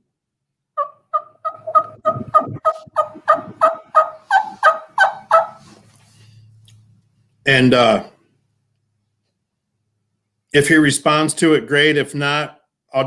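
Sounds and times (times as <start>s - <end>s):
turkey call yelps: 0.8s - 5.8s.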